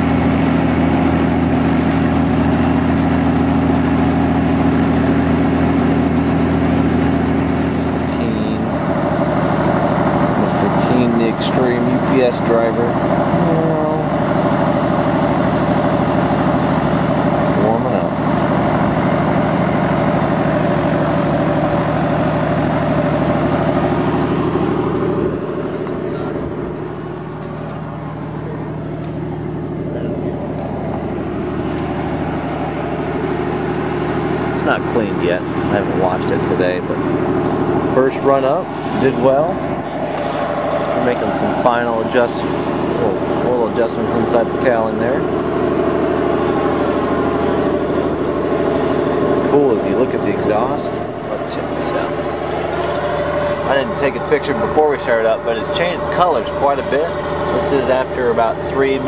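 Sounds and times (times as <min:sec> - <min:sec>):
helicopter piston engine running: 0:00.0 - 0:59.0
helicopter rotor turning slowly: 0:00.0 - 0:59.0.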